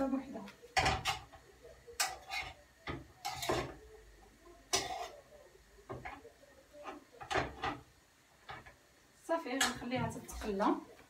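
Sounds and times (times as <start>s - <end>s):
metal utensil scraping cookware: 0.8s - 3.8s, 4.7s - 5.3s.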